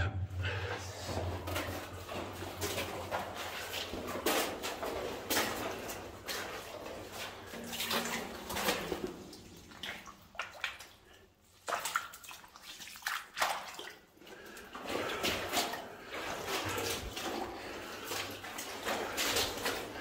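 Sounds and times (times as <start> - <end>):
footsteps splashing through water: 0.5 - 20.0.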